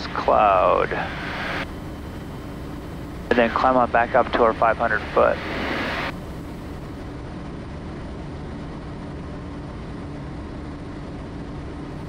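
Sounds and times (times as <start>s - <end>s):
faint steady hum: 0.0s - 12.0s
turboprop engine drone: 0.0s - 12.0s.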